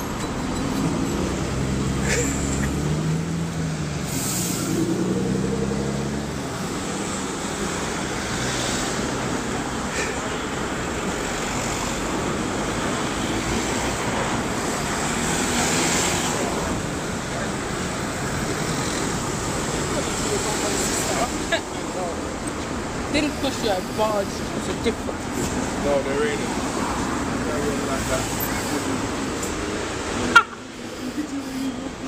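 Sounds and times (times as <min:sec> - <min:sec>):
bus engine pulling away: 0:00.0 - 0:32.0
cars passing: 0:00.0 - 0:32.0.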